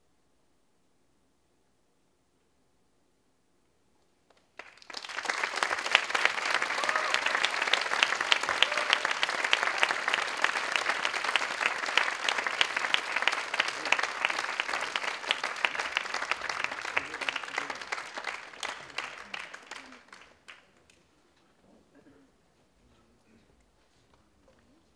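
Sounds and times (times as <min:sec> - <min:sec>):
audience applauding: 0:04.3 - 0:21.0.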